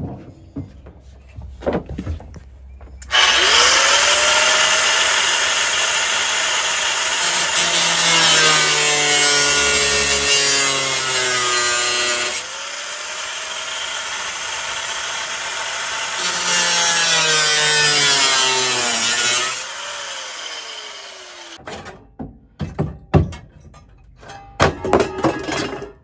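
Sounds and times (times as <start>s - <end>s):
angle grinder cutting steel: 3.0s - 21.6s
metallic knocks and clanks: 21.6s - 26.0s.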